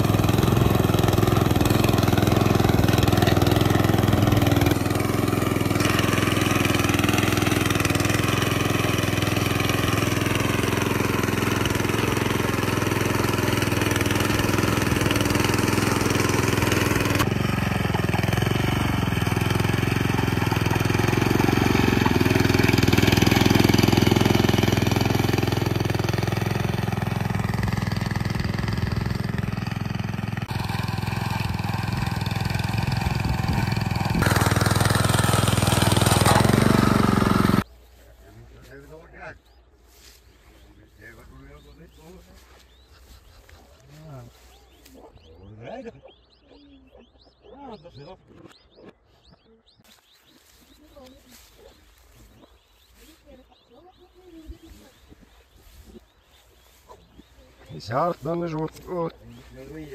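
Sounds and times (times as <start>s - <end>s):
small engine running under load: 0.0s - 37.7s.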